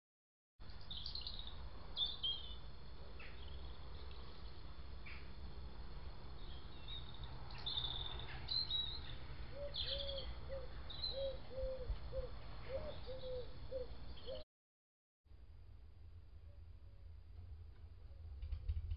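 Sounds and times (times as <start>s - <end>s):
small birds chirping and trilling: 0.6s - 5.4s, 6.3s - 14.4s.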